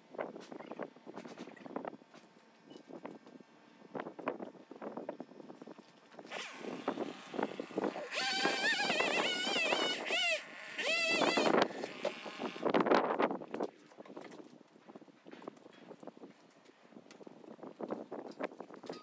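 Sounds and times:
chainsaw cutting wood: 6.3 - 12.8.

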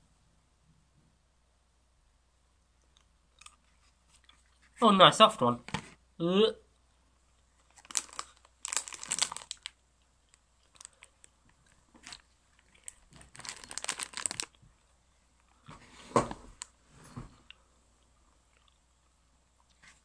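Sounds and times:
chewing: 2.9 - 4.6, 17.4 - 20.0
plastic bag crinkling: 7.6 - 14.6
thump: 15.7 - 16.5.

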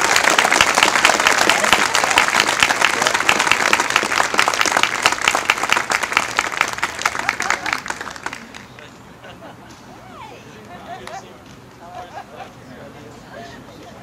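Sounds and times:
crowd applauding: 0.0 - 8.9.

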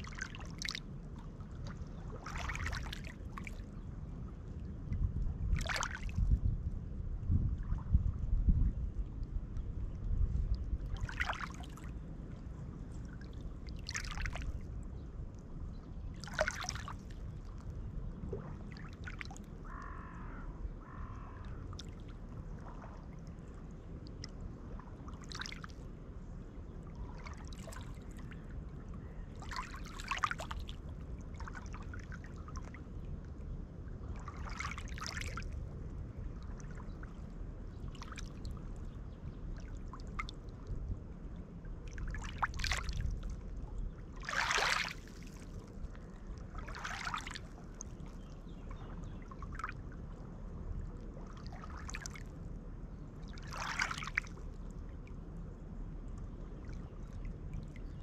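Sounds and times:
low rumble: 3.9 - 11.2.

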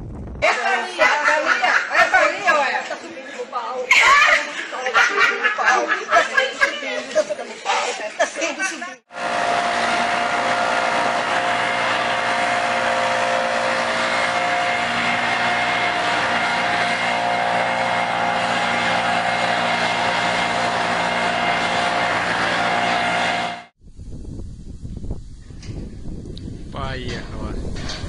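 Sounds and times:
leaf blower running: 9.1 - 23.8.

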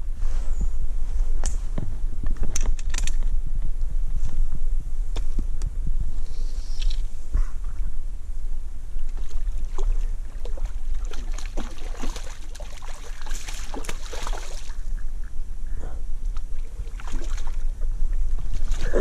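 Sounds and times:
wind rumble on microphone: 0.0 - 19.0
fish splashing at water surface: 9.2 - 14.8.

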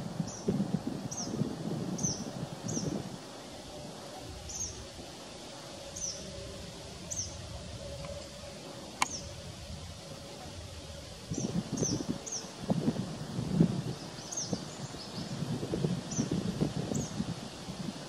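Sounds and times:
wind buffeting microphone: 0.0 - 18.0
bird chirping: 2.0 - 3.0, 4.5 - 4.9, 5.9 - 6.4, 7.0 - 8.2, 9.0 - 9.4, 11.3 - 12.5, 13.9 - 15.4.

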